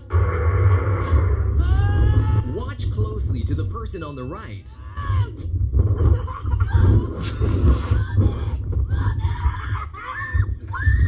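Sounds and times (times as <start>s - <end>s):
boy screaming: 8.0s - 11.0s.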